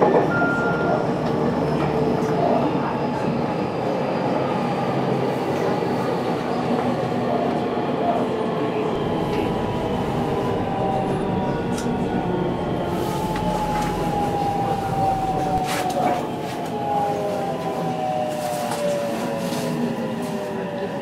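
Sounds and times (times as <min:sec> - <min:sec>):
train wheels rumbling: 0:05.5 - 0:20.9
faint whining tones: 0:08.8 - 0:17.2.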